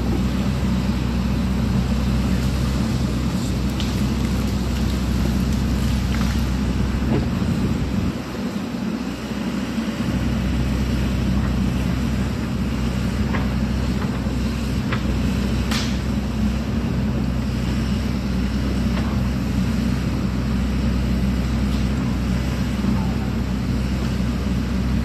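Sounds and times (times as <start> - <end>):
excavator diesel engine running: 0.0 - 25.0
wood snapping: 3.4 - 7.3, 15.6 - 16.1.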